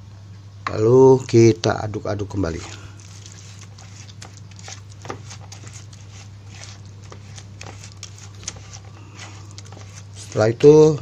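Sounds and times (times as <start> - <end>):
steady low hum: 0.0 - 11.0
paddle scraping wet mash in bowl: 2.3 - 11.0.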